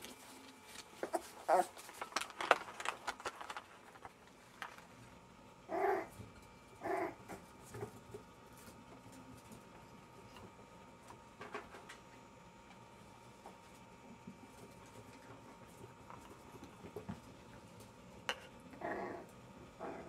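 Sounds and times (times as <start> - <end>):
rustling and clicks: 0.0 - 5.1.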